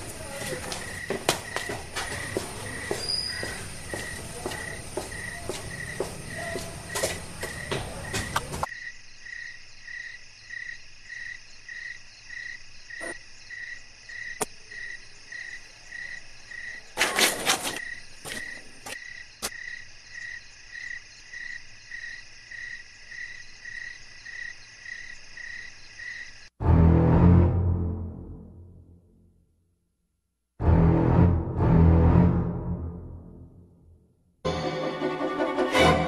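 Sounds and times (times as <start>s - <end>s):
footsteps on concrete floor: 0.0s - 8.7s
high insect hum: 0.0s - 17.0s
crickets chirping: 0.0s - 26.6s.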